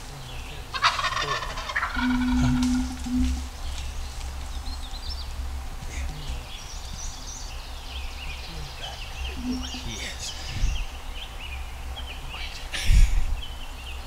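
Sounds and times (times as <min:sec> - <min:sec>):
songbirds chirping and trilling: 0:00.0 - 0:14.0
steady low rumble: 0:00.0 - 0:14.0.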